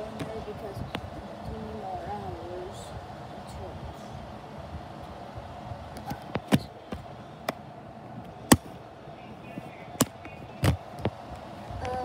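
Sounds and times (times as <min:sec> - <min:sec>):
faint hum: 0:00.0 - 0:12.0.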